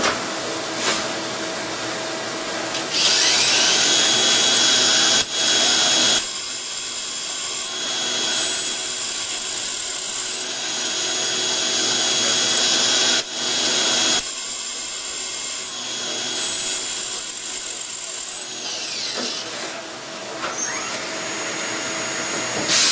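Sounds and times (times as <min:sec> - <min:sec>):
lathe whining: 0:02.8 - 0:19.7.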